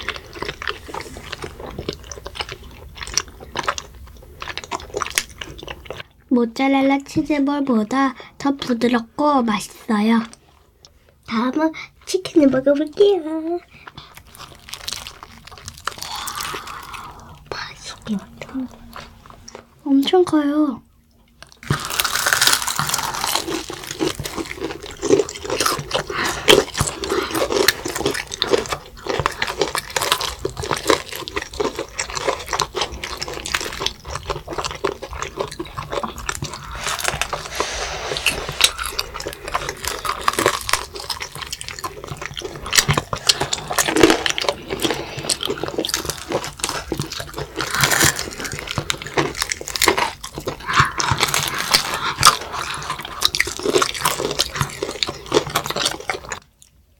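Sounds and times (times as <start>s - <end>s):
crunching and chewing fried chicken: 0.0s - 6.2s, 6.9s - 56.9s.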